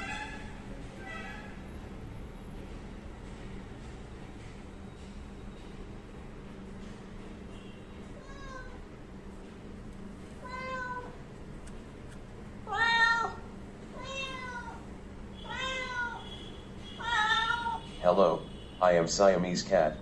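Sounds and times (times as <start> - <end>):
cat meowing: 8.2 - 8.8, 10.4 - 11.2, 12.7 - 14.8, 15.4 - 16.3, 17.0 - 17.8.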